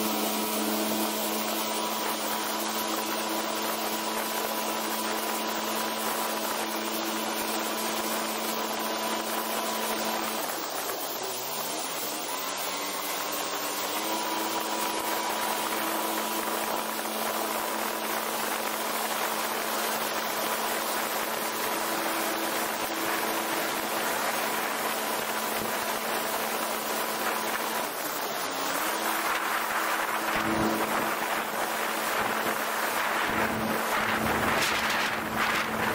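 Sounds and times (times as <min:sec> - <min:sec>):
personal watercraft engine whine: 0:00.0 - 0:35.9
spray and wind hiss: 0:00.0 - 0:35.9.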